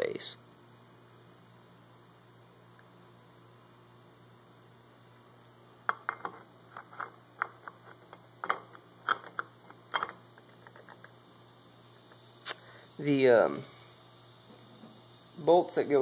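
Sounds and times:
light metallic clinks: 0:05.9 - 0:11.2.

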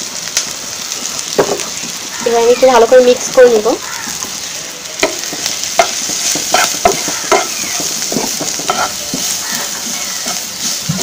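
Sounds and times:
onions sizzling in oil: 0:00.0 - 0:11.0
spatula scraping a wok: 0:05.0 - 0:11.0.

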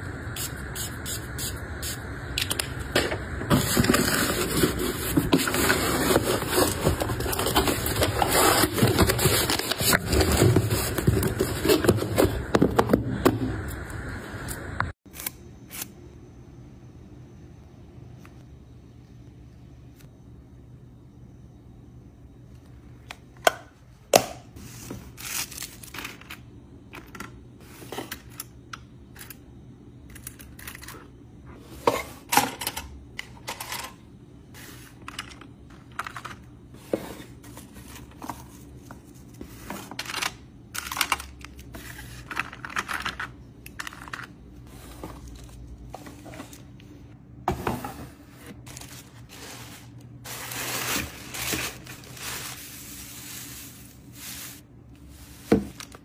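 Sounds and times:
tissue paper crinkling: 0:48.6 - 0:55.9.

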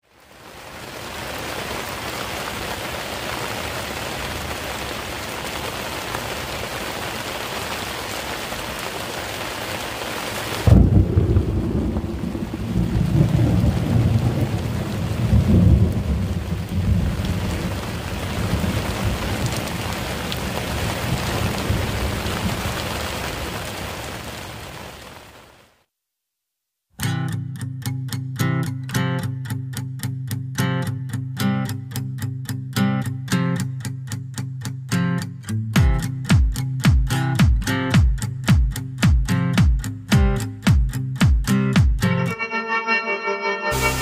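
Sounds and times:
heavy rain hissing: 0:00.1 - 0:25.8, 0:43.8 - 0:44.0
rolling thunder: 0:10.6 - 0:23.8
loud thunderclap: 0:10.6 - 0:24.0.

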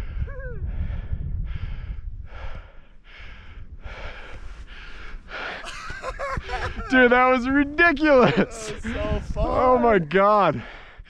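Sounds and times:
person panting hard: 0:00.0 - 0:07.0, 0:08.5 - 0:09.2, 0:10.6 - 0:11.0
low microphone rumble: 0:00.0 - 0:10.0.

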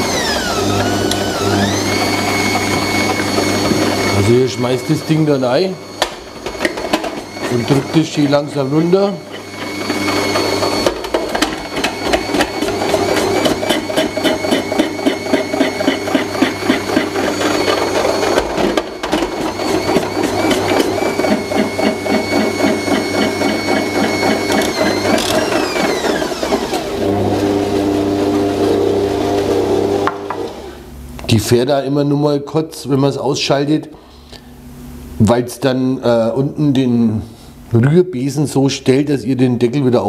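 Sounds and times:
stand mixer motor running: 0:00.0 - 0:30.8.

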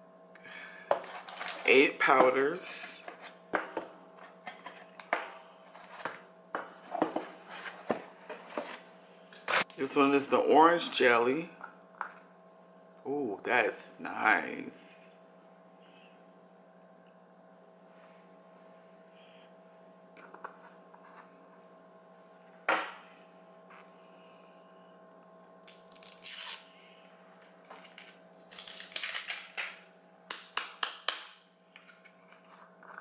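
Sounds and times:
low electrical hum: 0:00.0 - 0:33.0
packaging rustling: 0:01.1 - 0:01.7, 0:27.8 - 0:29.8.

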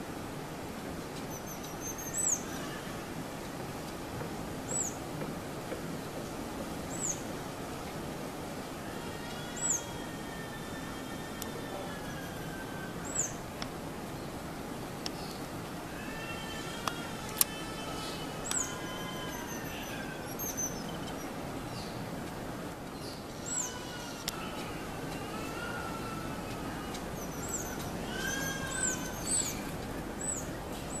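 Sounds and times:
long whistled tones: 0:17.8 - 0:21.4
high-pitched bird chirps: 0:27.2 - 0:30.5.

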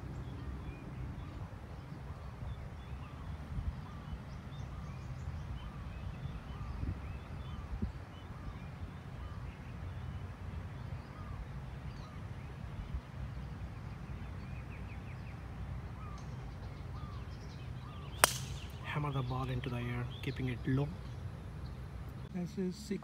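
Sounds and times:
wind rumble on microphone: 0:00.0 - 0:18.0
golf club striking ball: 0:18.1 - 0:18.8.

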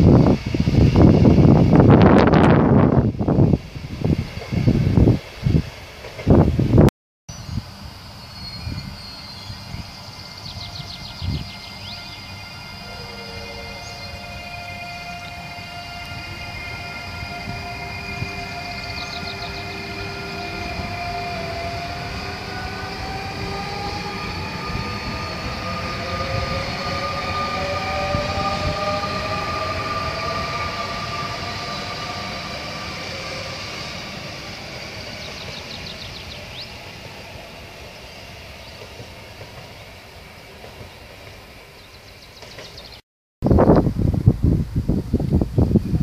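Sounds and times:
wheels rumbling on rail: 0:00.0 - 0:46.0
electric traction motors whining: 0:10.4 - 0:38.5.

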